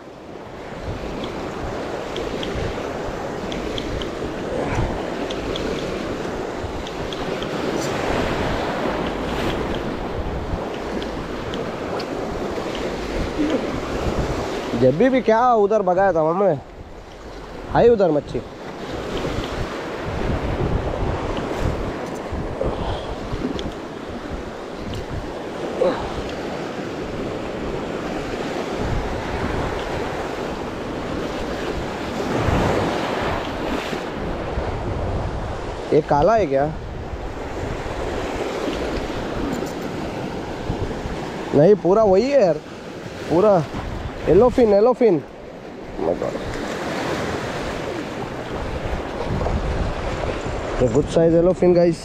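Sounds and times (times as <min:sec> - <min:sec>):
waves breaking over rocks: 0:00.0 - 0:52.0
wind buffeting microphone: 0:00.0 - 0:52.0.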